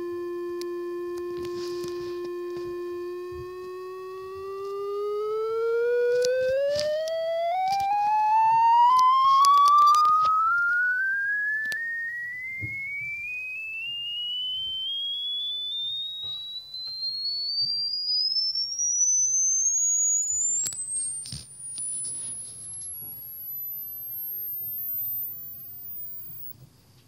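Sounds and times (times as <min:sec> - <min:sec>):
sine tone sweeping upward: 0:00.0 - 0:26.6
faint clicks: 0:15.8 - 0:26.5.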